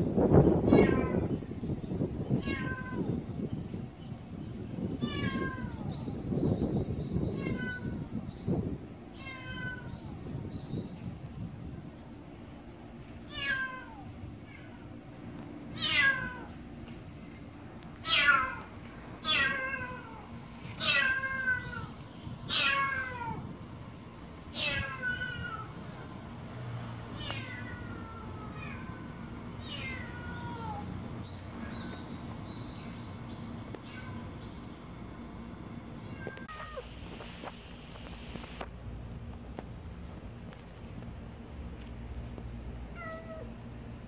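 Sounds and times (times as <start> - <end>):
cat meowing: 2.4 - 3.1, 5.0 - 6.0, 7.4 - 8.0, 9.2 - 10.2, 13.3 - 14.9, 15.8 - 16.6, 18.0 - 23.4, 24.5 - 25.8, 27.2 - 31.0, 33.8 - 34.2, 43.0 - 43.5.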